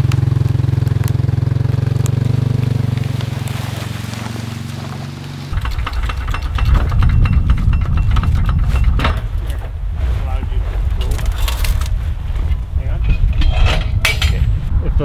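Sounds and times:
knocks and wood crunching: 0.0s - 14.6s
low rumble: 0.0s - 15.0s
small engine idling: 5.1s - 8.7s.

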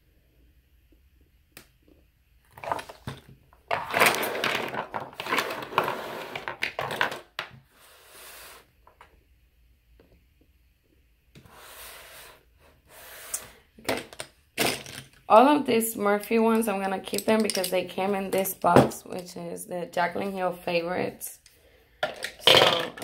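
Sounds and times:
makeup brushes clattering: 2.6s - 7.3s, 16.6s - 19.0s, 22.0s - 23.0s.

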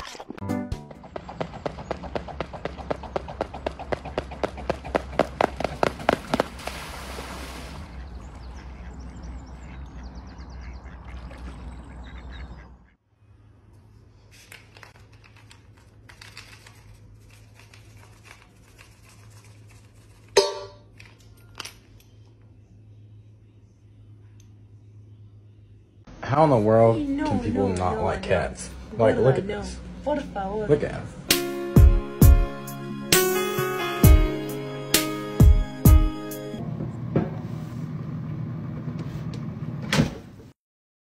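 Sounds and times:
swan splashing across water: 3.4s - 9.0s, 10.8s - 12.4s.

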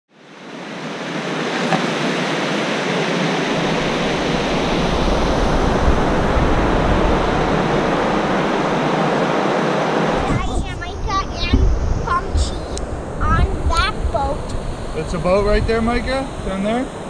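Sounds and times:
deep rumble: 10.1s - 17.0s.

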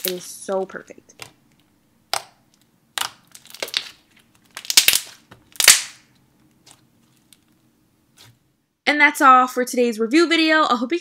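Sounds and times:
slime squished by hand: 2.1s - 6.8s.

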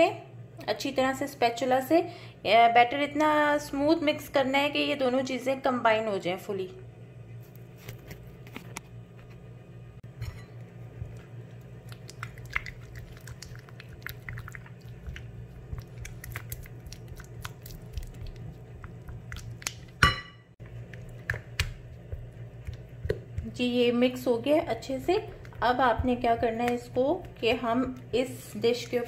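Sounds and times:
steady low hum: 0.0s - 29.0s
spatula squelching in cream: 11.0s - 20.0s, 20.6s - 29.0s.

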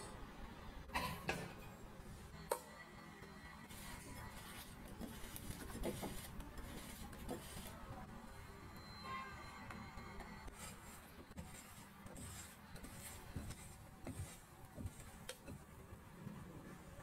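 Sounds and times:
spatula swishing against glass bowl: 10.5s - 15.2s.

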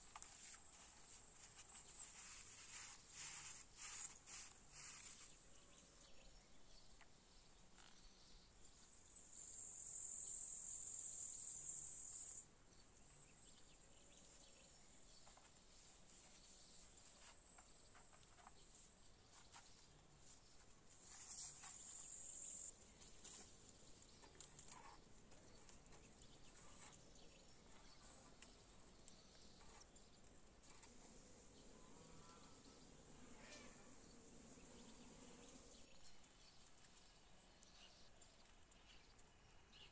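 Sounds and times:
insect buzzing song: 9.2s - 12.4s, 21.1s - 22.8s.

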